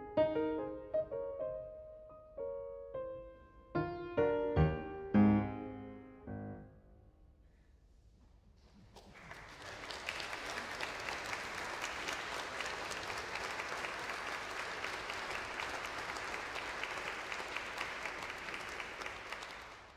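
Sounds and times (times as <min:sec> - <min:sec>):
hands clapping: 0:08.6 - 0:19.9.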